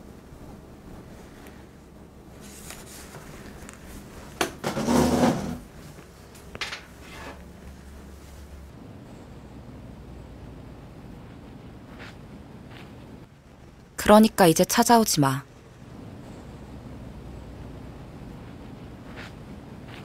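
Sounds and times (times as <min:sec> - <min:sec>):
low steady hum: 0:00.0 - 0:20.0
chair scraping across floor: 0:04.5 - 0:06.0, 0:06.6 - 0:07.5.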